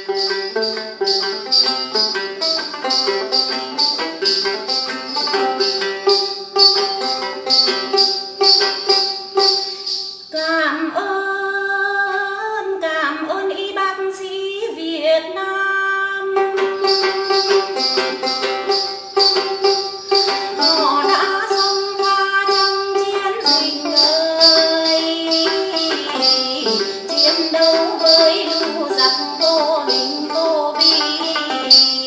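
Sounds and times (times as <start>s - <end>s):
plucked lute folk melody: 0.0s - 9.8s, 16.3s - 32.0s
steady jingling rhythm: 0.0s - 10.6s, 16.6s - 32.0s.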